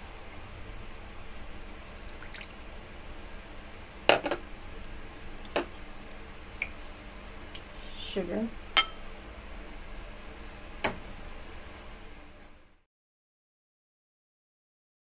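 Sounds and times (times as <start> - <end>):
liquid trickling into bowl: 1.8 - 2.7.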